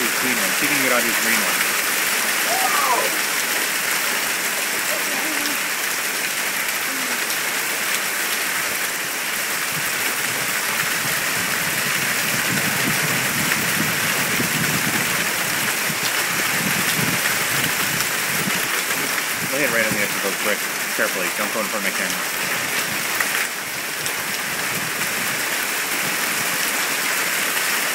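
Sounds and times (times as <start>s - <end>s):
hail and rain falling: 0.0s - 27.9s
hailstones ticking: 0.0s - 27.9s.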